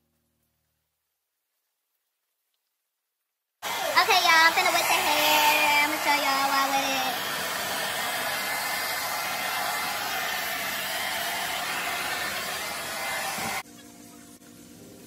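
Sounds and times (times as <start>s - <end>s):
person speaking: 3.6s - 7.4s
hair dryer running: 3.6s - 13.6s.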